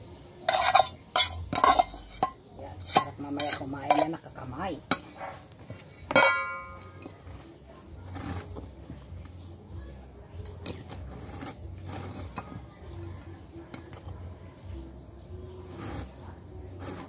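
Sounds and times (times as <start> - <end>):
cutlery clinking against bowl: 0.4 - 7.4.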